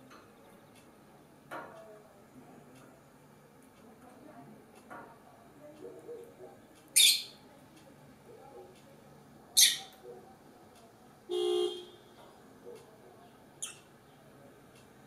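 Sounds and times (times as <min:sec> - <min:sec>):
faint bird chirp: 0:05.8 - 0:07.4, 0:09.5 - 0:10.2, 0:12.7 - 0:14.3
bird shrill calls: 0:07.0 - 0:07.3, 0:09.6 - 0:09.9.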